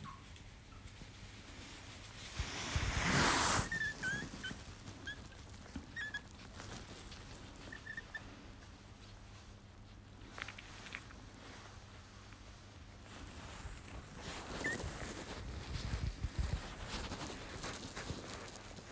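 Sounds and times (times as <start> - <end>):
otter chirping and squeaking: 3.4 - 6.6, 7.6 - 8.3, 14.4 - 15.1.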